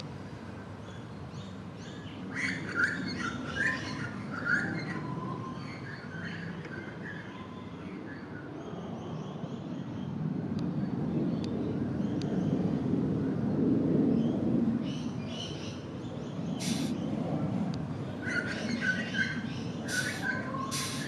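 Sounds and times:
birds chirping: 14.2 - 17.2, 17.8 - 21.0.

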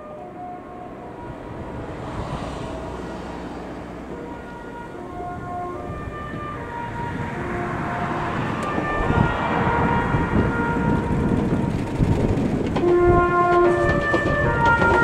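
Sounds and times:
electric train musical horn: 0.0 - 15.0
train running noise: 8.3 - 15.0.

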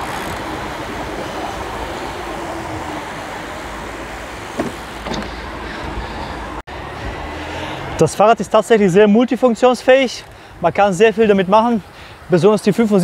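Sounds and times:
street traffic noise: 0.0 - 13.0
brief knocks: 4.6 - 5.3.

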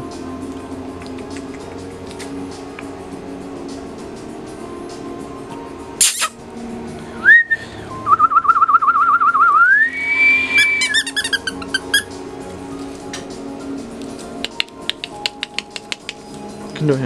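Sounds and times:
background music: 0.0 - 17.0
person whistling: 7.2 - 11.5.

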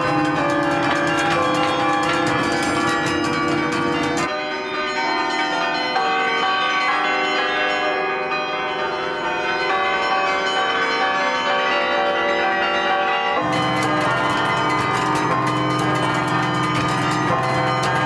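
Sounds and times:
wooden baton keys clattering: 0.0 - 4.3, 13.4 - 18.0
carillon bells playing a tune: 0.0 - 18.0.

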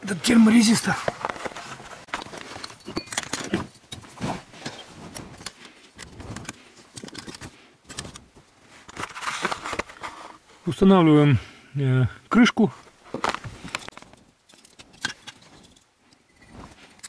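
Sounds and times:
hands handling small plastic parts: 0.8 - 10.4, 13.1 - 17.0.

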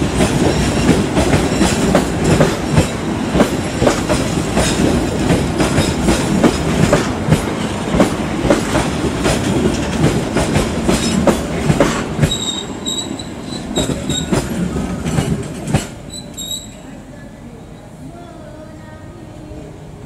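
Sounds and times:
train wheels clacking on rails: 0.0 - 16.7
high wheel squeals: 12.2 - 14.4, 16.0 - 16.8.

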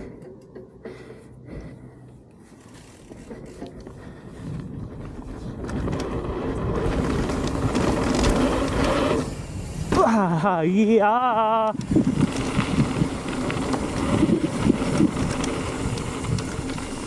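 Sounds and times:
bike frame rattle: 0.0 - 1.8, 2.4 - 17.0
bike tyre noise on dirt: 0.0 - 17.0
wind on microphone: 4.0 - 10.0, 11.7 - 17.0.

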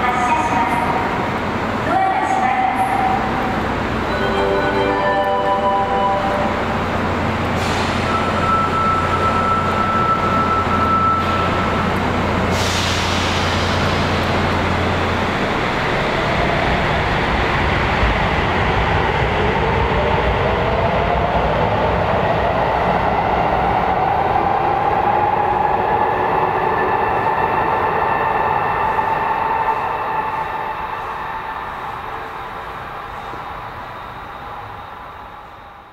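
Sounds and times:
air brake hisses: 12.5 - 13.9.

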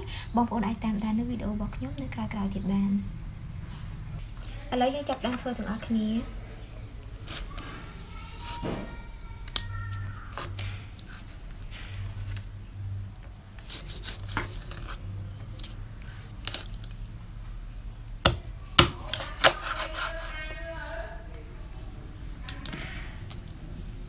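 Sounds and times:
low steady hum: 0.0 - 24.0
knife cutting and scraping fish: 7.1 - 20.7.

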